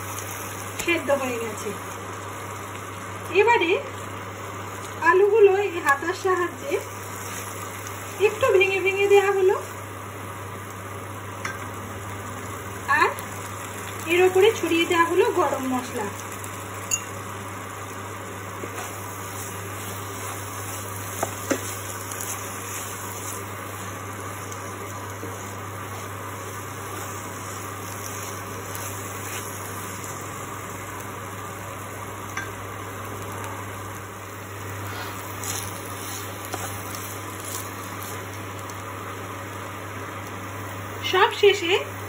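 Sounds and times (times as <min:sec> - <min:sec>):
steady low hum: 0:00.0 - 0:41.1
curry sizzling gently: 0:00.0 - 0:42.0
spatula stirring and scraping: 0:18.6 - 0:30.3, 0:34.9 - 0:38.5.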